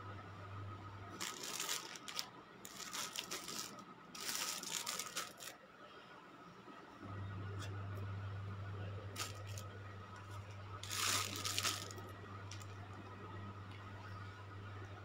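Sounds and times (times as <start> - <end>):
low steady hum: 0.0 - 15.0
plastic bags crinkling: 1.1 - 5.6, 9.2 - 12.8.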